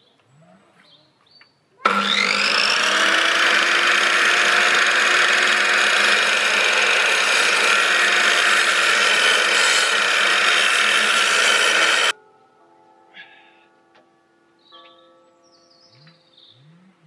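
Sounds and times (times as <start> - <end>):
mitre saw cutting timber: 1.8 - 12.1.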